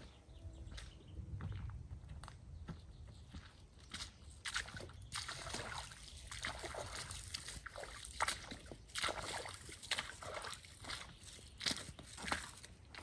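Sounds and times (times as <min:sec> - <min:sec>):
boots squelching through mud: 0:03.3 - 0:13.0.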